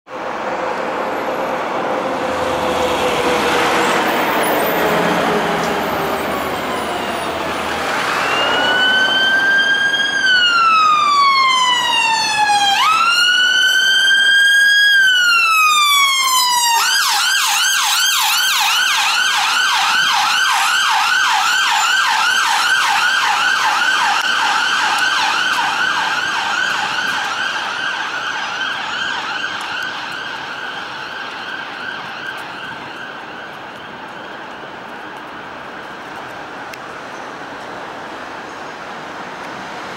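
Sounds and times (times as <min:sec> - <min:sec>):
road traffic: 0:00.1 - 0:39.9
ambulance siren wailing and yelping: 0:02.1 - 0:36.1.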